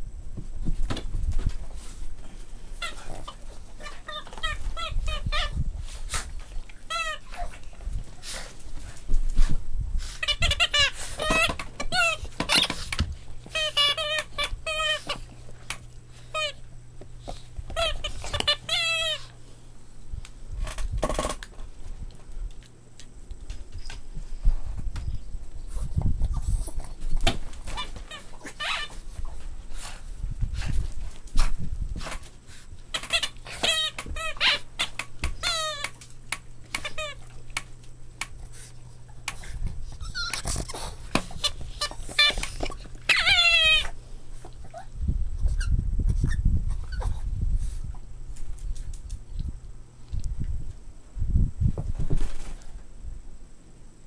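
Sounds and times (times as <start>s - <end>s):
puppies scuffling in play: 0.3s - 49.6s, 51.7s - 52.9s
puppy squealing: 2.8s - 5.6s, 6.8s - 7.6s, 10.2s - 12.8s, 17.8s - 19.3s, 27.7s - 29.0s, 33.0s - 36.0s, 36.8s - 37.3s, 39.9s - 40.8s, 41.4s - 44.0s.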